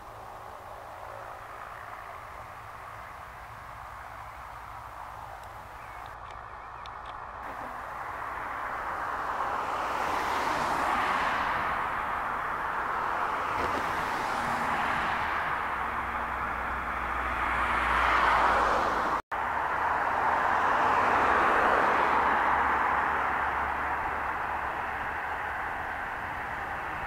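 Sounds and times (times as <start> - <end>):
turboprop engines roaring: 0.0 - 17.5.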